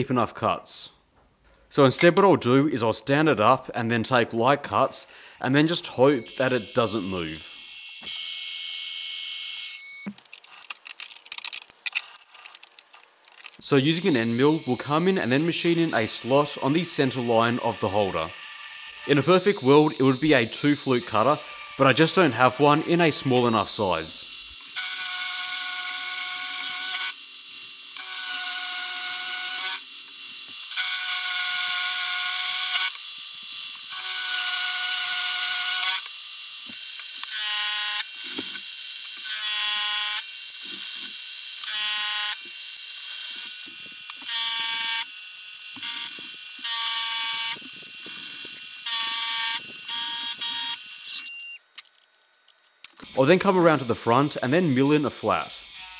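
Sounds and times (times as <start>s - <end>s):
milling machine spindle whining: 13.4s - 27.2s.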